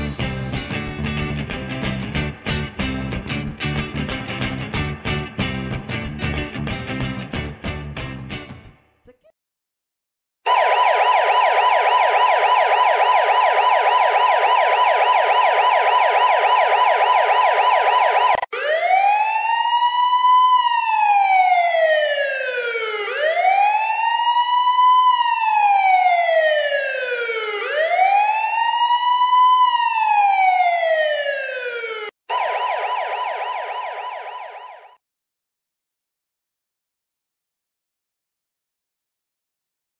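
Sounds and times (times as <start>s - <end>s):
police siren yelp and wail: 10.5s - 35.0s.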